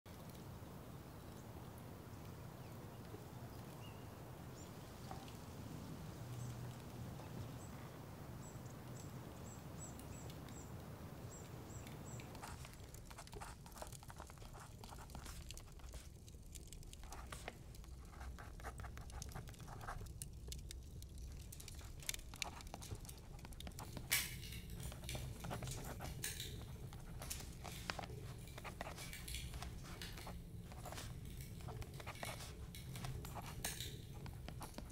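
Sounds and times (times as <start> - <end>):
pen scratching on paper: 24.9 - 34.9.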